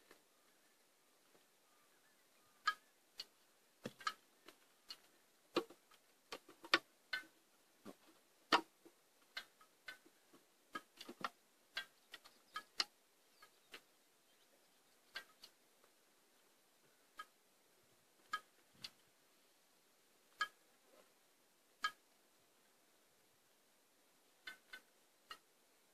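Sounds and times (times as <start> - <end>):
sharp clicks and light taps: 2.6 - 13.9.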